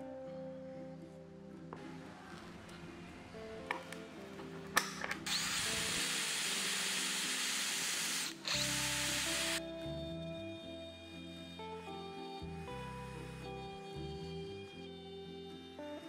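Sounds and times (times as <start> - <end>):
background music: 0.0 - 16.0
power drill whining: 5.2 - 9.6.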